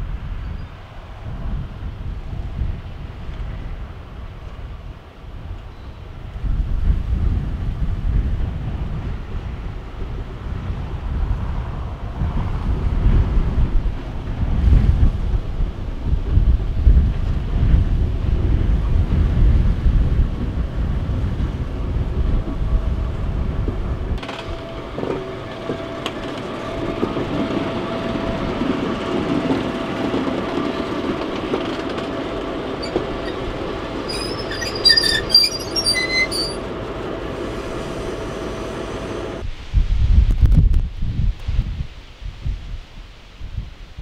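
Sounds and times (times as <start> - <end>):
freight train wheels rumbling: 0.0 - 39.5
wind buffeting microphone: 0.0 - 44.0
high wheel squeals: 32.8 - 36.7.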